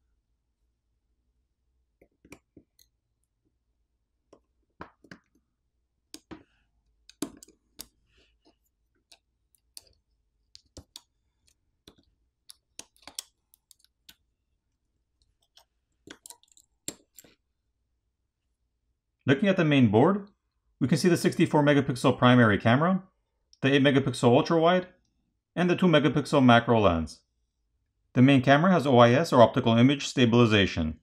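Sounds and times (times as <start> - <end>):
faint clicks and taps: 2.0 - 3.6, 4.2 - 5.5, 6.1 - 14.3, 15.2 - 17.4.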